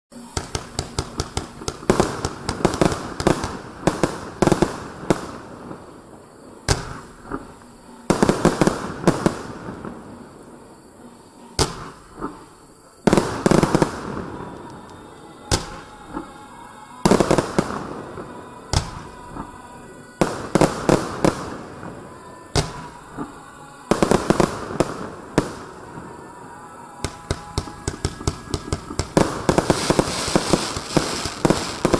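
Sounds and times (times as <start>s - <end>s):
firework shots and cracks: 0.2s - 5.8s, 6.7s - 10.0s, 11.6s - 12.4s, 15.5s - 15.9s, 18.7s - 19.5s, 22.6s - 25.8s, 27.0s - 31.9s.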